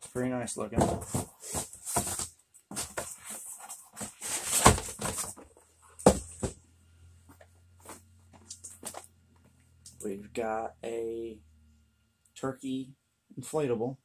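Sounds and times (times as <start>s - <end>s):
cardboard rustling and scraping: 0.0s - 6.6s, 7.3s - 9.1s
faint low hum: 0.0s - 14.0s.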